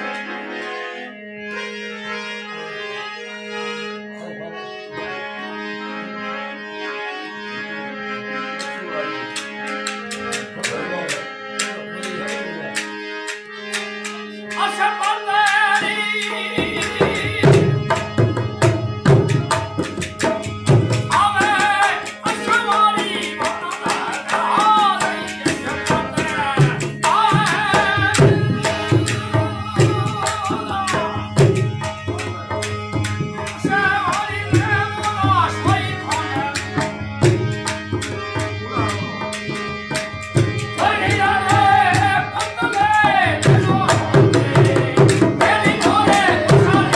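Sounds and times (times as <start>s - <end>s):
harmonium drone: 0.0s - 46.9s
man singing: 14.5s - 18.1s, 21.0s - 32.6s, 33.4s - 37.0s, 40.8s - 46.9s.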